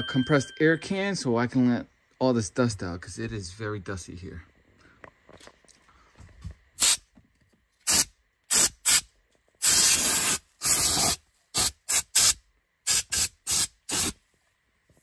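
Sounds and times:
compressed air hissing blasts: 0:06.8 - 0:07.1, 0:07.8 - 0:14.2.

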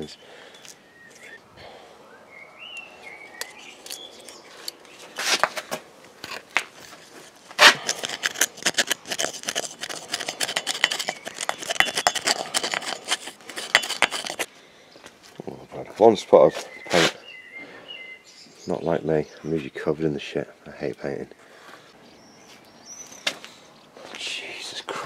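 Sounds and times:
brush scrubbing paint on steel: 0:06.3 - 0:14.5.

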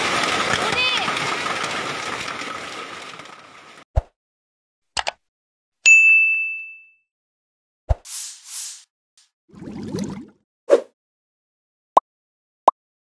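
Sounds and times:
hailstorm: 0:00.0 - 0:03.8
bright bell ding: 0:05.9 - 0:07.0.

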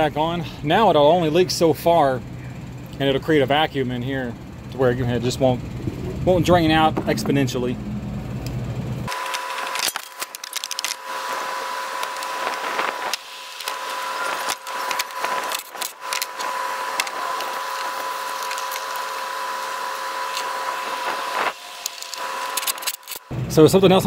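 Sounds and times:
power tool clicks and clatter: 0:09.1 - 0:23.3.

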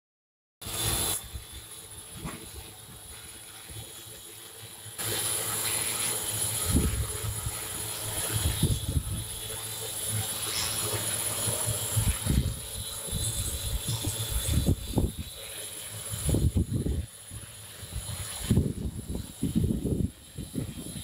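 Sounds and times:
drone rotors humming: 0:00.6 - 0:21.0
low rumbling gusts: 0:06.6 - 0:09.6, 0:11.8 - 0:15.4, 0:16.0 - 0:21.0.

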